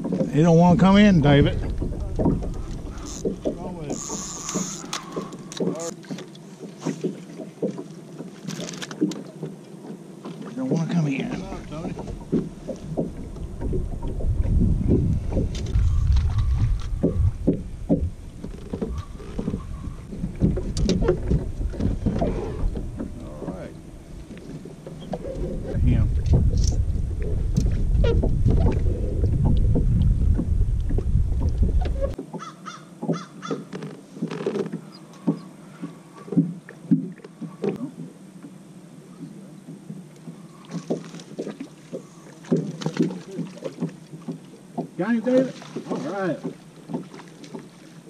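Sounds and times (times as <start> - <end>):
wind rumble on microphone: 0.0 - 4.0, 11.4 - 32.2
knocks and splashy thuds: 0.0 - 38.2, 39.2 - 48.0
water lapping against boat hull: 0.0 - 48.0.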